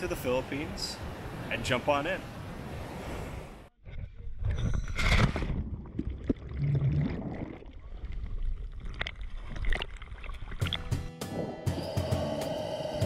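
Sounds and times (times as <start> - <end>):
water sloshing and gurgling: 4.2 - 11.7.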